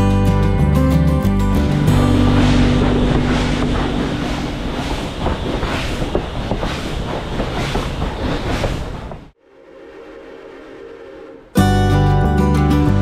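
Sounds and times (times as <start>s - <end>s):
train rumbling on rails: 1.5s - 9.4s
train clanking and clattering: 1.8s - 9.3s.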